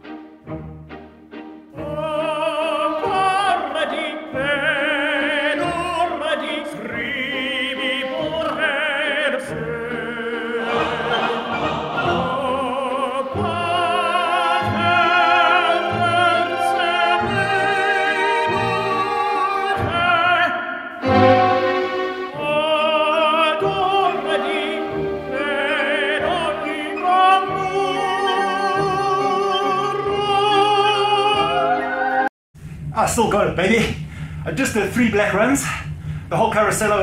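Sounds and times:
operatic singing with orchestra: 1.7s - 32.3s
short musical notes: 21.0s - 22.6s.

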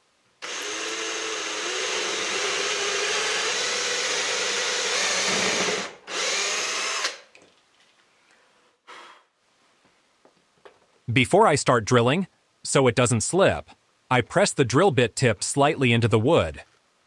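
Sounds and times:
cordless drill boring wood: 0.4s - 7.3s.

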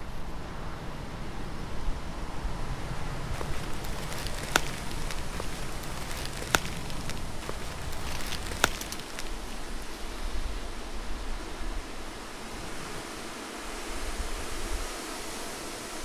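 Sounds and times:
footsteps through dry leaves: 3.2s - 10.2s
twigs snapping: 3.3s - 10.0s.

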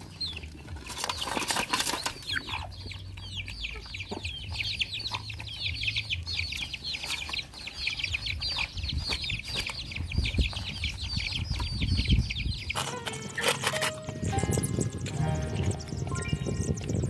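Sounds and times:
puppies chewing and lapping: 0.0s - 12.0s
chicks peeping: 0.0s - 17.0s.

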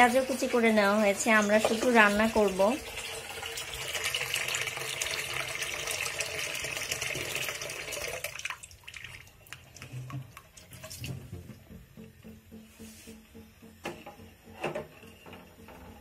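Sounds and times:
tap water running into a metal bowl: 0.0s - 12.6s
water dripping: 1.2s - 12.4s.

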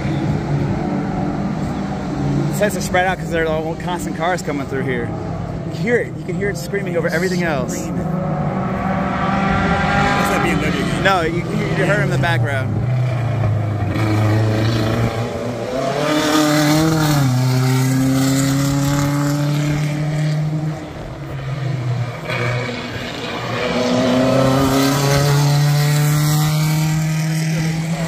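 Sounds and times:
racing car engines at high revs: 0.0s - 28.0s.

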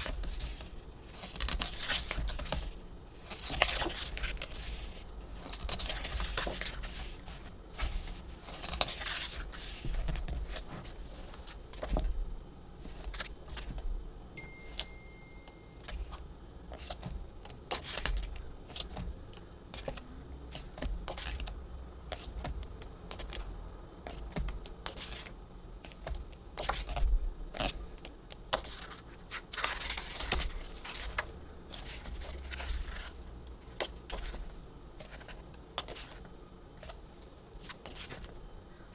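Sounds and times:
pages turning: 0.0s - 12.1s, 12.8s - 13.8s, 28.5s - 37.0s.

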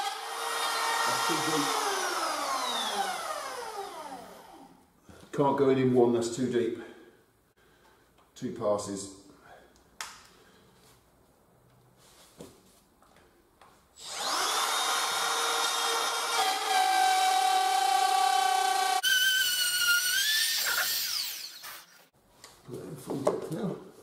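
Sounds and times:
router whining through wood: 0.0s - 4.8s, 14.0s - 22.1s.

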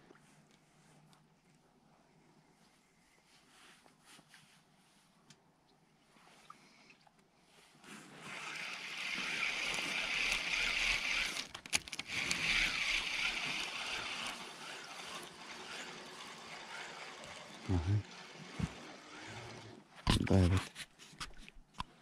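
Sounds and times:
fishing reel whirring: 8.3s - 19.8s
reel clicks: 8.4s - 17.6s.

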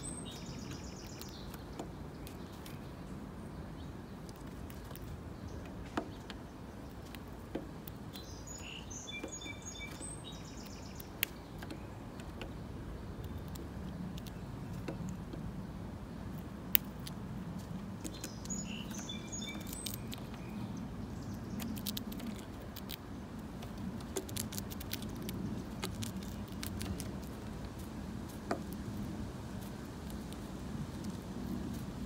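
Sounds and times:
high bird chirps: 0.0s - 1.6s, 8.2s - 12.0s, 18.0s - 22.4s
bird pecking on wooden board: 4.2s - 8.3s, 11.0s - 15.5s, 16.2s - 20.6s, 21.3s - 32.0s.

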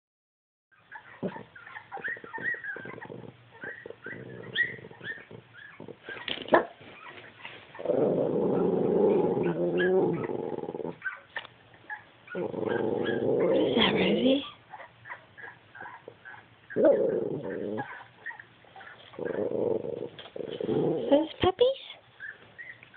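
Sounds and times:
dog whimpering and yipping: 0.7s - 7.9s, 8.5s - 21.1s, 22.2s - 22.9s
dog grumbling growl: 1.1s - 6.5s, 7.8s - 11.1s, 12.3s - 14.4s, 16.7s - 18.1s, 19.1s - 21.3s.

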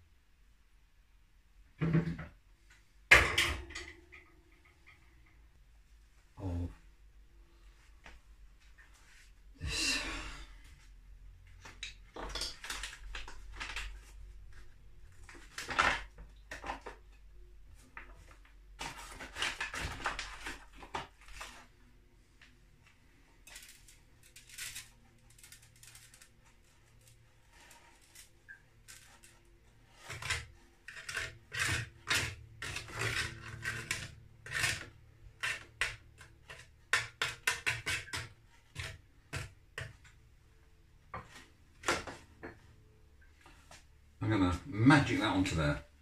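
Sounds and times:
metal spoon scraping baking tray: 27.0s - 39.4s.

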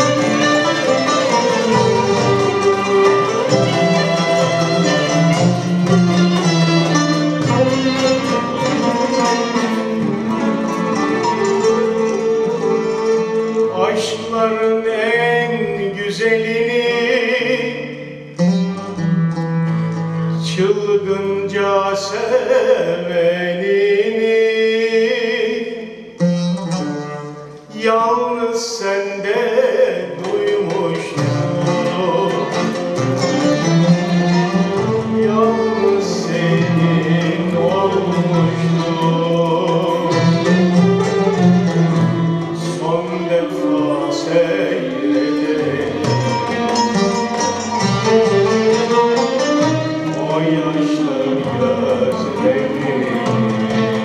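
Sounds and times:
traditional string and clarinet ensemble: 0.0s - 15.1s, 18.8s - 21.0s, 30.2s - 54.0s
man singing: 11.2s - 18.4s, 20.3s - 26.2s, 27.7s - 54.0s.

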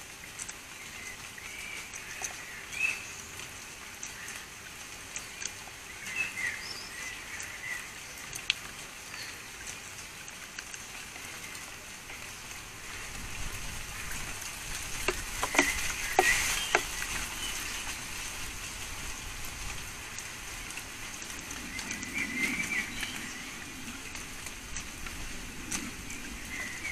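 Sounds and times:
crackly outdoor hiss: 0.0s - 26.9s
bird pecking at wire feeder: 14.9s - 17.0s.

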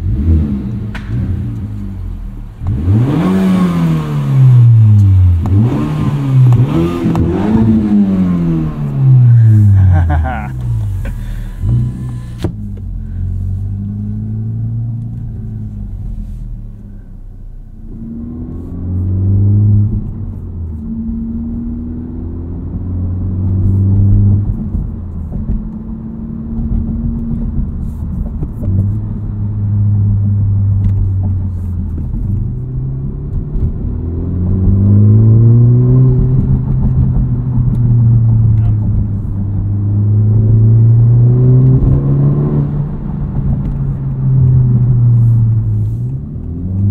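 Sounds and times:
car engine accelerating: 0.0s - 46.9s.

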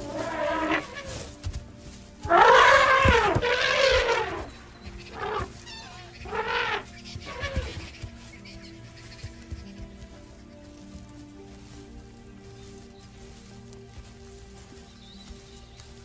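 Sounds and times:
elephant calls: 0.0s - 1.3s, 2.2s - 8.0s
soundtrack music humming: 0.0s - 16.0s.

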